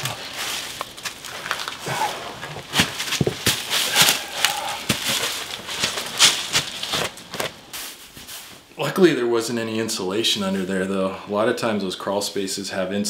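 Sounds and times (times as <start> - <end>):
dry leaves crunching and rustling: 0.0 - 8.0.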